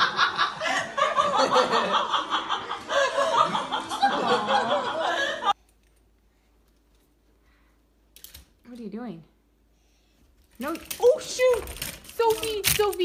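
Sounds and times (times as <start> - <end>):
people laughing: 0.0 - 5.6.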